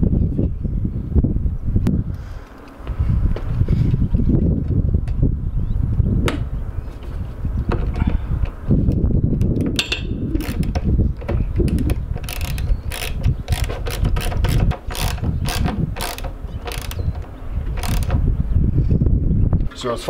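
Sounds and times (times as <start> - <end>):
wind rumbling on microphone: 0.0 - 20.0
hand ratchet clicking: 9.4 - 18.2.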